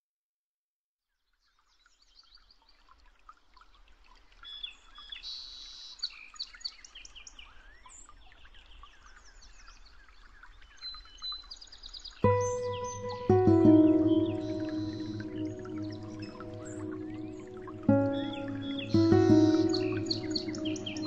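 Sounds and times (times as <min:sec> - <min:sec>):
birds chirping and trilling: 0:12.2 - 0:21.0.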